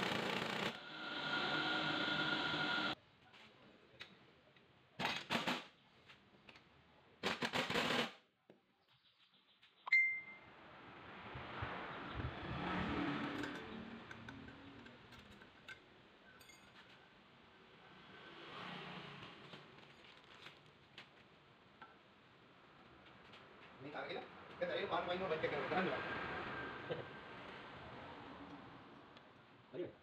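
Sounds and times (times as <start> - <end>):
scraping and handling noise: 19.3 - 21.4.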